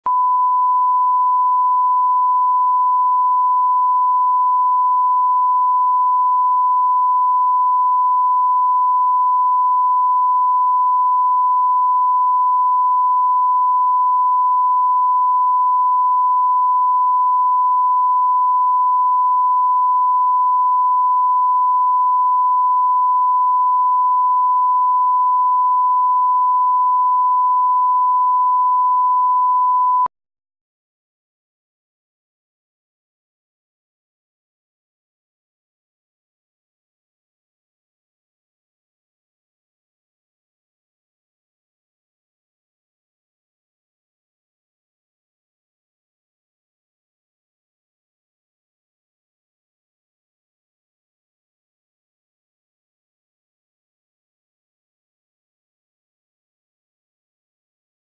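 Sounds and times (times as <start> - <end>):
steady sine test tone: 0.0 - 30.1.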